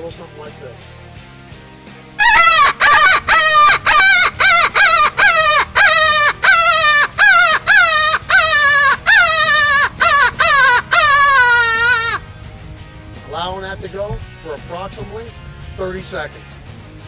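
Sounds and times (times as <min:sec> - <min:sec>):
predator call wailing squeals: 0:02.2 - 0:12.2.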